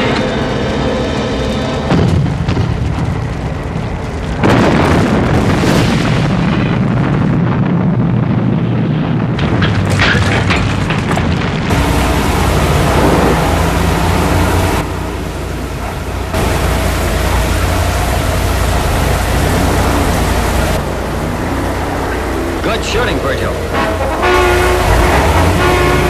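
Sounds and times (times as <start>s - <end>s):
heavy explosion rumble: 0.0s - 26.0s
sharp crackles: 1.8s - 20.8s.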